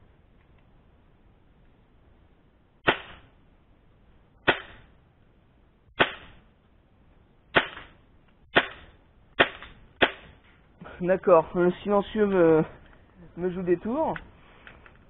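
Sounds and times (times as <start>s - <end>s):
airsoft gun shots: 2.8s - 3.3s, 4.4s - 4.9s, 6.0s - 6.4s, 7.5s - 10.4s.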